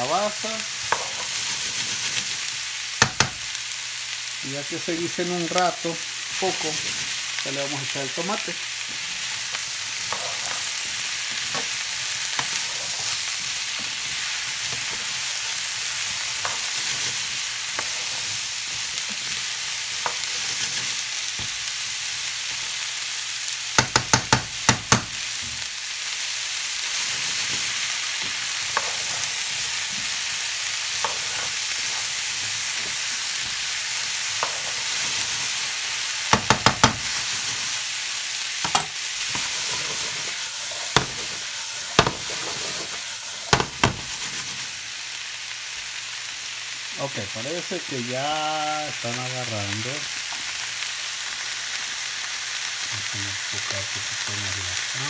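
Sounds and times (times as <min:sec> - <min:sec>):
vegetables sizzling in oil: 0:00.0 - 0:55.0
spoon knocking against pan: 0:03.0 - 0:03.4, 0:23.8 - 0:25.2, 0:36.3 - 0:37.0.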